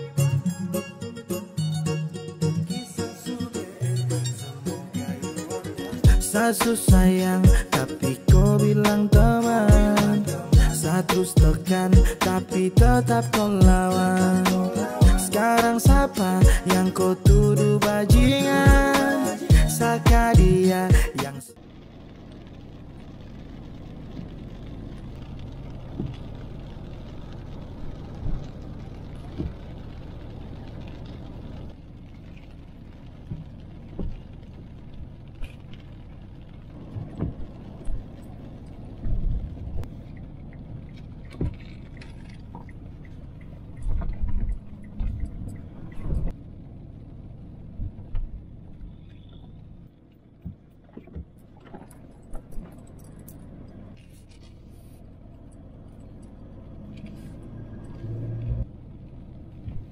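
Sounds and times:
engine and tyre rumble: 0:03.9 - 0:59.9
tyre hiss on wet road: 0:04.9 - 0:40.2, 0:52.9 - 0:58.7.

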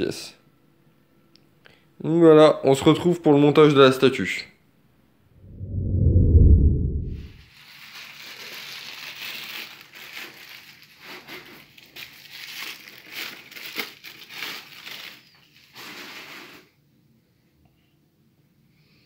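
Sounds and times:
deep low rumble: 0:05.4 - 0:07.4
packaging crinkling and rustling: 0:07.4 - 0:16.6.

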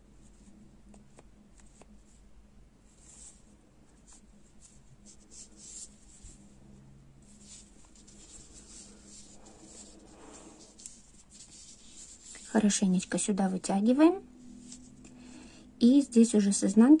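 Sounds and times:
yarn rustling and scratching: 0:02.9 - 0:06.6, 0:07.2 - 0:12.6.

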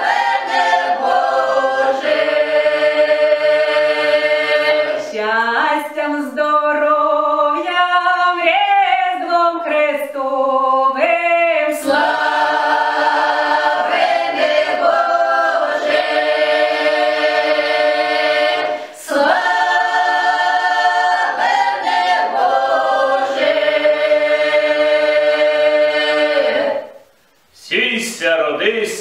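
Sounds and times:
choir singing in harmony: 0:00.0 - 0:08.0, 0:10.2 - 0:27.0.

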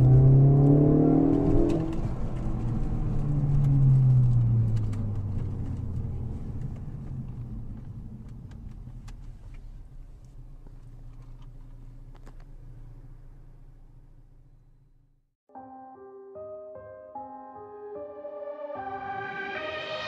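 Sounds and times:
car engine pulling away: 0:00.0 - 0:15.1.

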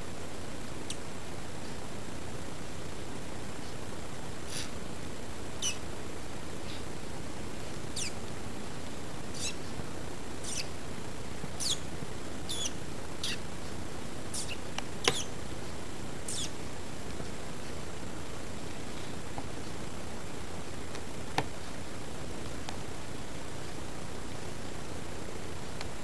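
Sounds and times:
steady hiss: 0:00.0 - 0:26.0
guinea pigs squeaking: 0:04.4 - 0:04.8, 0:05.6 - 0:05.9, 0:07.9 - 0:08.2, 0:09.3 - 0:09.7, 0:10.4 - 0:10.8, 0:11.5 - 0:13.5, 0:14.3 - 0:15.4, 0:16.2 - 0:16.6
sharp click: 0:14.4 - 0:15.3.

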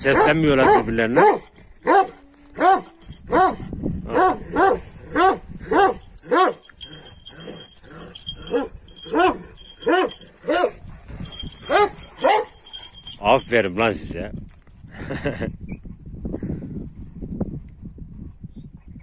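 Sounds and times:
dog barking: 0:00.0 - 0:06.9, 0:08.4 - 0:12.8.

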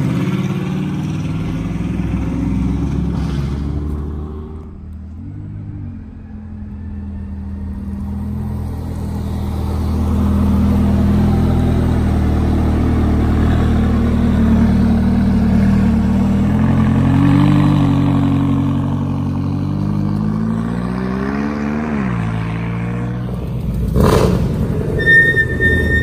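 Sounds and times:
sports car engine revving: 0:09.6 - 0:25.0.

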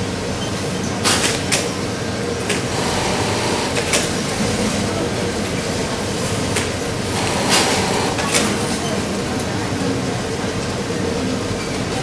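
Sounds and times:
sewing machines running: 0:02.2 - 0:09.5.

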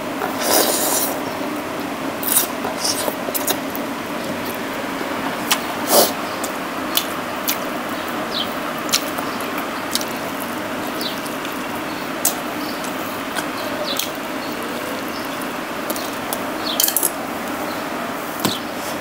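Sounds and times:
steady background hiss: 0:00.0 - 0:19.0
wet chewing and lip-smacking: 0:05.3 - 0:14.3.

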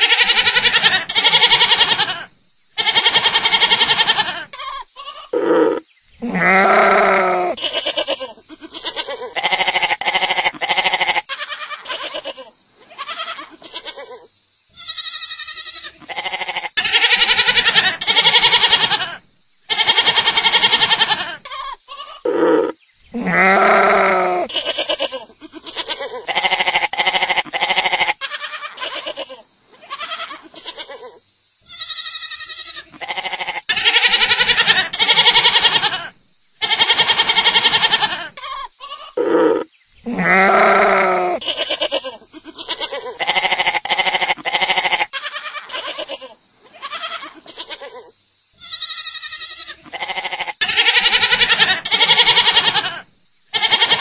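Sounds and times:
goats bleating: 0:00.2 - 0:14.0, 0:14.8 - 0:19.2, 0:20.9 - 0:31.0, 0:31.7 - 0:36.1, 0:37.2 - 0:48.0, 0:48.6 - 0:53.0
short high-pitched cry: 0:05.2 - 0:07.7, 0:22.1 - 0:24.6, 0:39.0 - 0:41.5.

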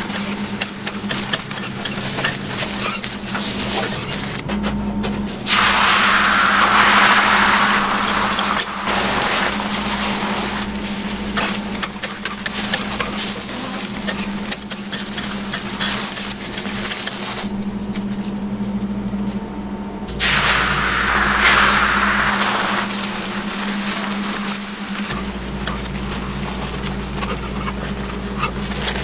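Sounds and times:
steady low hum: 0:00.0 - 0:29.0
egg sizzling on griddle: 0:05.4 - 0:17.4, 0:20.1 - 0:28.0
metal spatula clicking and scraping: 0:11.8 - 0:17.4.

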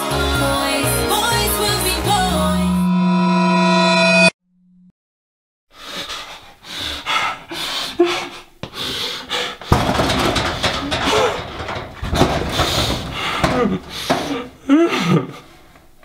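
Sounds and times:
man breathing hard through nose: 0:05.7 - 0:11.4, 0:12.4 - 0:15.7
muffled moans: 0:09.9 - 0:15.3.

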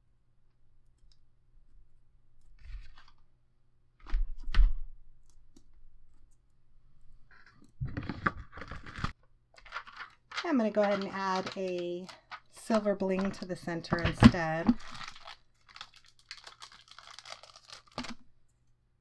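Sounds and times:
paper book rustling: 0:07.8 - 0:18.2.

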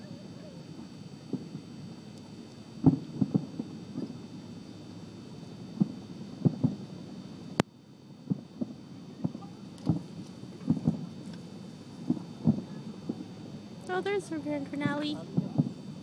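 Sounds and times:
distant fireworks booming: 0:00.6 - 0:01.8, 0:02.8 - 0:04.3, 0:05.8 - 0:06.8, 0:08.2 - 0:15.9.

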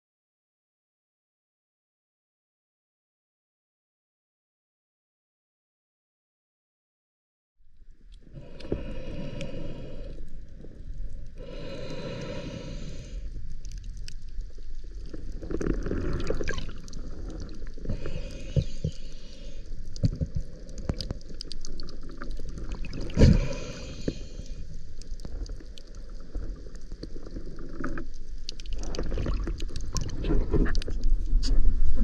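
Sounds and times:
underwater water sloshing: 0:08.0 - 0:32.0.

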